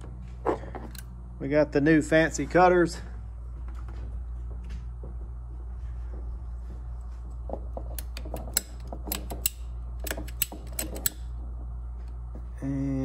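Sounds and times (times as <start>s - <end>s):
low hum: 0.0s - 13.0s
pipe cutter clicking and snapping: 7.9s - 11.3s.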